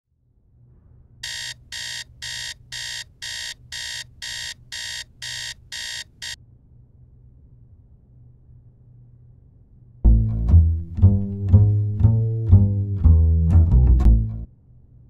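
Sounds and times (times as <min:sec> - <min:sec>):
alarm clock beeping: 0:01.2 - 0:06.4.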